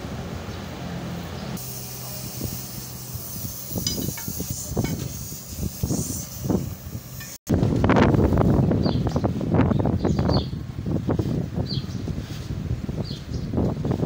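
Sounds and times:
air hissing: 1.6s - 7.5s
tyre bar clinking on steel rim: 3.6s - 5.2s.

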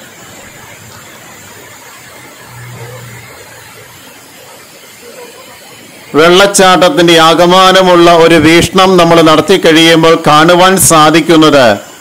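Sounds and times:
waterfall rushing hiss: 0.0s - 12.0s.

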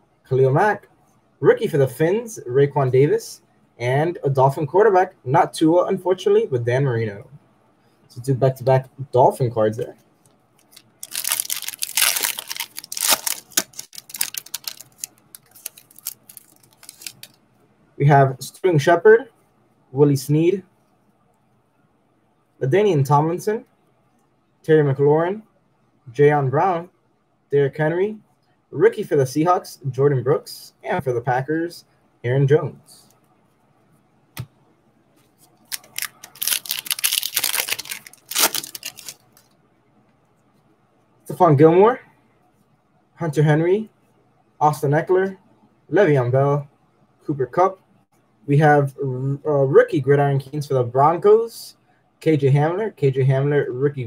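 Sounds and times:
foil wrapper tearing and crinkling: 10.6s - 17.4s, 35.6s - 39.4s.

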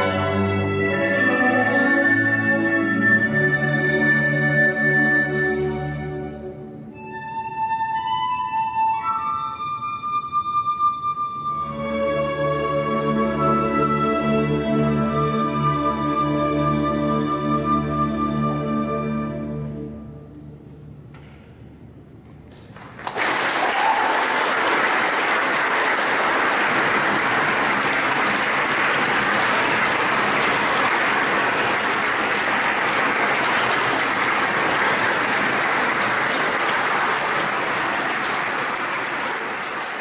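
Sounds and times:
audience applause: 22.6s - 40.0s.

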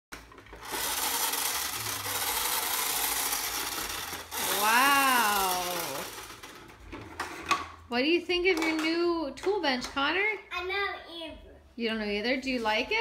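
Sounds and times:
toy power tool whirring: 0.3s - 6.8s.

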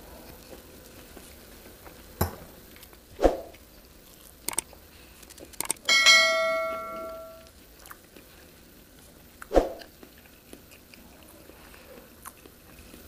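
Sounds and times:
quick clicks: 4.5s - 5.9s
notification bell ding: 5.9s - 7.4s.

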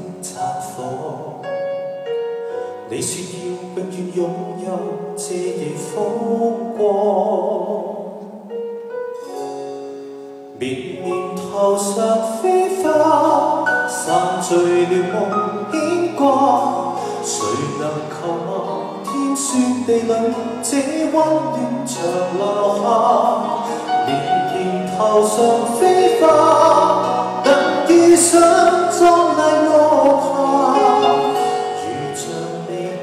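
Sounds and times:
piano ballad: 0.0s - 33.0s
person singing long notes: 10.6s - 33.0s.

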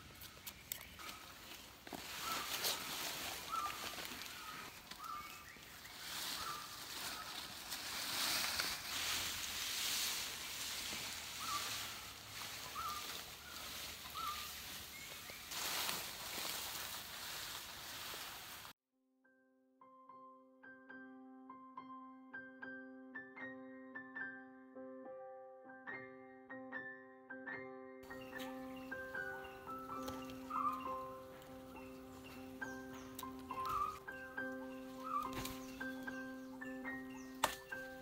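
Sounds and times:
palm fronds scraping leaf litter: 0.0s - 18.8s, 34.7s - 36.2s.

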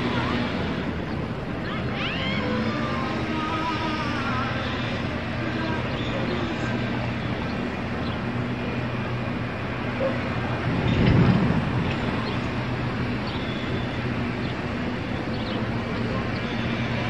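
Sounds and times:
road traffic noise: 0.0s - 17.0s
vehicle passing close: 8.6s - 15.2s.

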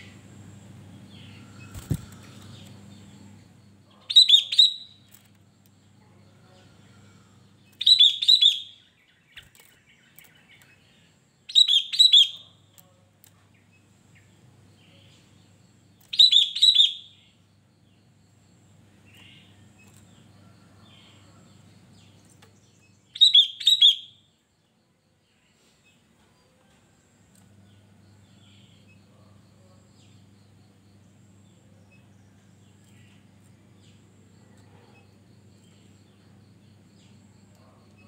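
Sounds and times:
bird singing: 0.0s - 26.8s, 27.4s - 38.0s.

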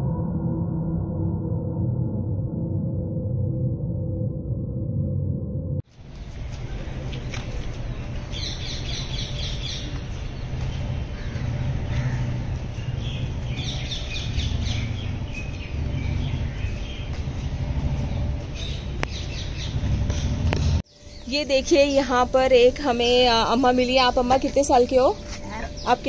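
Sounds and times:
steady low rumble: 0.0s - 26.0s
birds chirping: 6.1s - 26.0s.

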